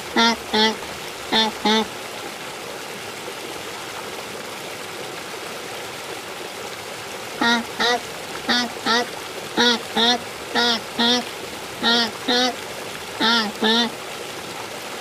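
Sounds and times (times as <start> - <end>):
waterfowl nasal calls: 0.0 - 1.9, 7.4 - 12.6, 13.2 - 14.0
water washing along shore: 0.0 - 4.9, 7.1 - 15.0.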